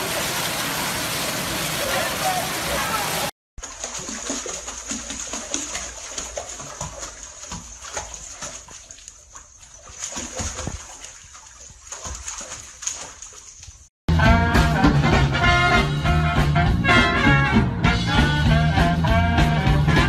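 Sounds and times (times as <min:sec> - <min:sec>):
bathwater lapping and splashing: 0:00.0 - 0:13.9.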